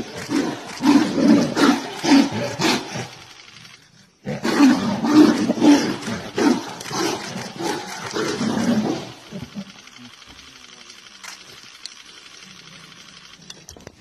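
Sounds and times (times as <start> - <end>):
tigers roaring: 0.0 - 9.9.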